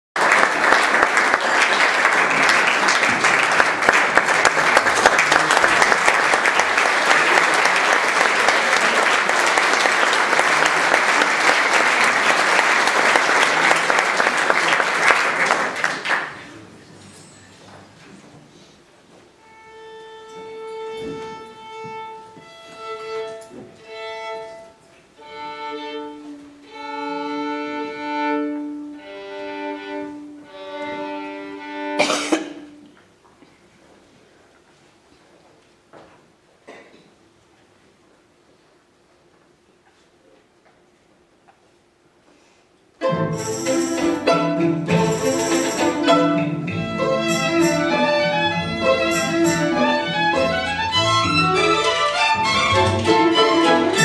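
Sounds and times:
audience applauding: 0.2s - 16.7s
violin tuning: 19.4s - 32.0s, 43.0s - 54.0s.

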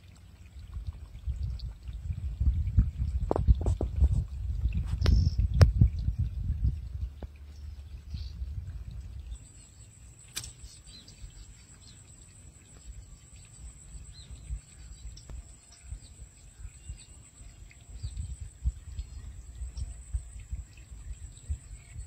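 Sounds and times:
wind rumble on microphone: 0.0s - 22.0s
faint bird chirps: 7.5s - 22.0s
sharp click: 10.3s - 10.6s.

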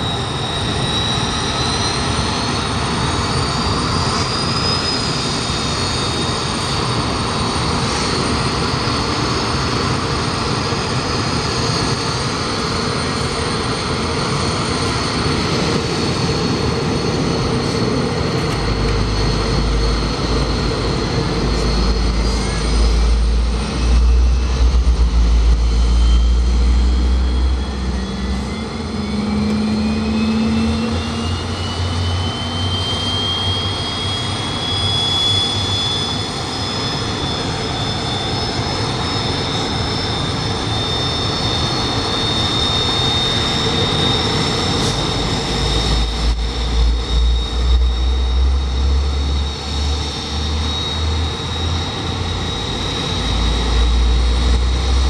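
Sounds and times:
jet engine turbine whine: 0.0s - 55.0s
low rumble: 15.5s - 32.7s, 52.2s - 55.0s.

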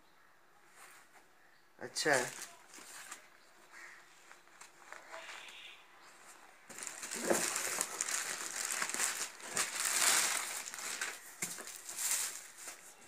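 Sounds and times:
plastic bag crinkling: 2.0s - 3.3s, 6.7s - 13.0s.

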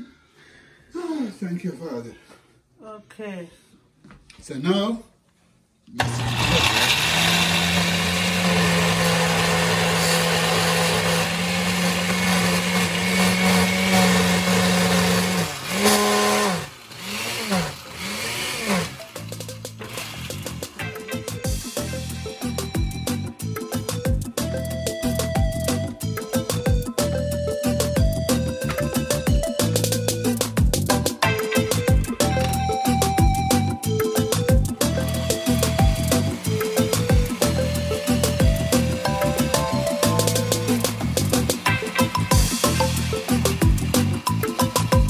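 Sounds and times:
blender motor running: 6.0s - 45.0s
held melody line: 18.9s - 45.0s
deep drum beat: 21.4s - 23.2s, 24.0s - 27.1s, 27.8s - 33.7s, 34.3s - 36.4s, 37.0s - 37.6s, 38.4s - 41.7s, 42.3s - 44.1s.

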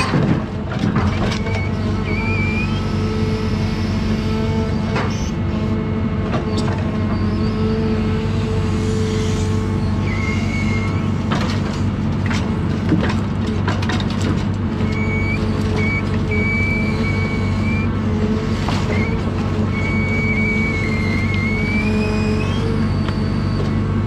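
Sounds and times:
diesel engine running: 0.0s - 24.0s
knocks and clatters: 11.3s - 14.6s.

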